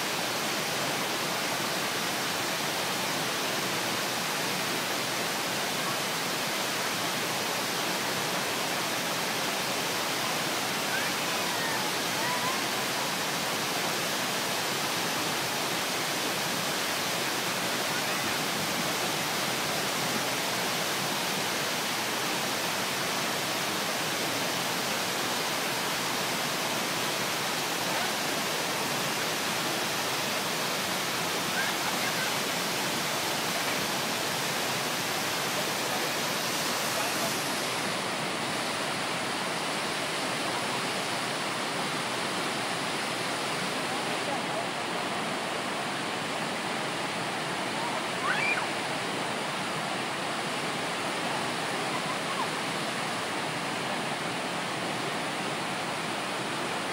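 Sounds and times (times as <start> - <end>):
waterfall pouring onto rocks: 48.2 - 48.6.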